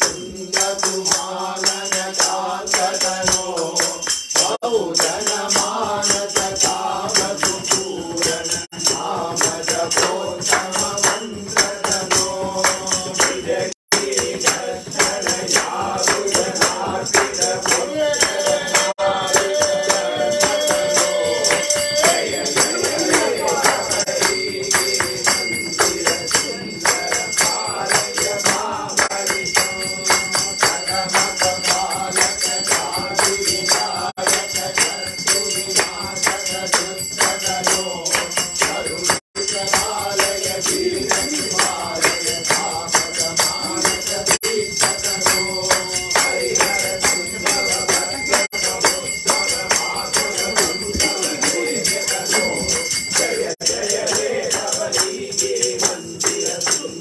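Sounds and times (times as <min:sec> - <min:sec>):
devotional singing: 0:00.0 - 0:57.0
jingling hand percussion: 0:00.0 - 0:57.0.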